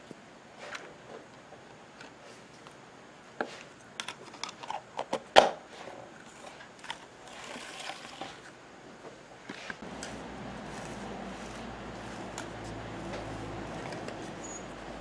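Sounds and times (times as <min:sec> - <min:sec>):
rustle: 0:00.0 - 0:15.0.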